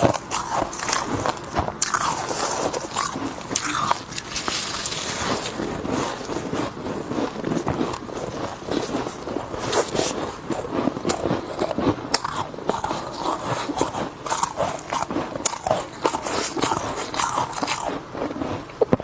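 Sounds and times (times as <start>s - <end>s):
crunching and chewing frost: 0.0s - 19.0s.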